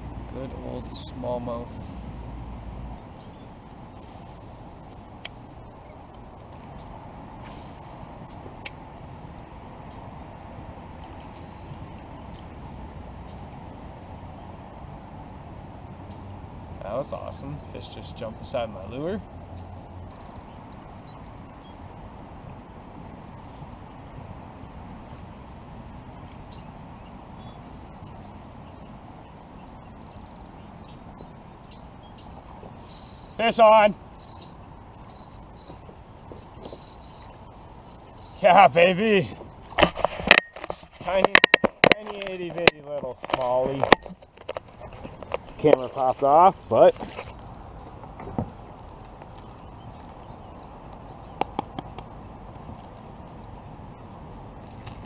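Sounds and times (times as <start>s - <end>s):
small birds chirping: 0.0s - 10.1s, 11.0s - 15.0s, 15.8s - 39.8s, 40.5s - 55.0s
low rushing wind noise: 0.0s - 55.0s
steady outdoor hiss: 0.0s - 55.0s
faint bird chirps: 25.1s - 39.5s.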